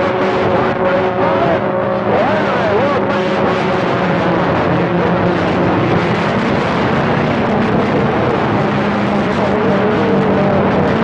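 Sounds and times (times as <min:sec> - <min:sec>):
radio static: 0:00.0 - 0:06.8.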